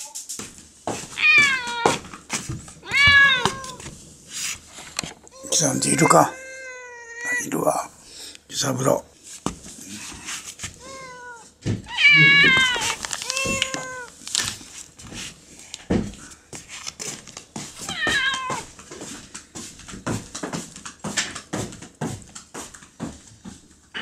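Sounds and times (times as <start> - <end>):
cat meowing: 1.2 - 2.0, 2.8 - 3.8, 5.3 - 7.6, 10.8 - 14.2, 17.8 - 18.7.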